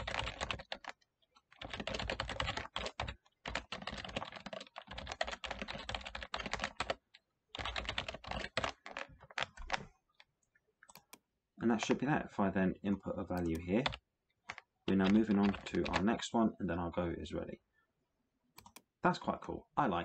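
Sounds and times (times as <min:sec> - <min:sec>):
typing on keyboard: 0:00.0 - 0:09.9, 0:13.3 - 0:16.1.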